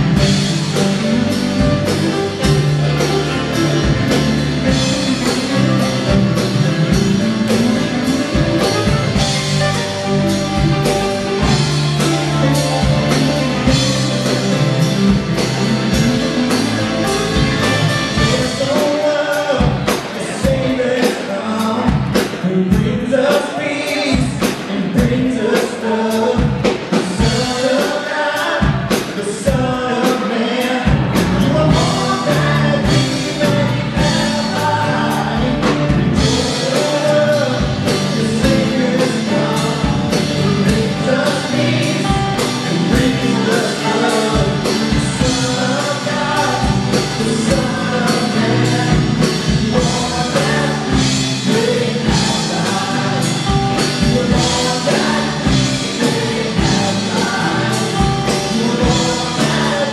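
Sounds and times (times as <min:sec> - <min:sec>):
electric bass: 0:00.0 - 0:20.7, 0:30.9 - 0:59.9
drum kit beat: 0:00.0 - 0:59.9
guitars: 0:00.0 - 0:59.9
keyboard: 0:00.0 - 0:59.9
women singing: 0:36.4 - 0:59.9.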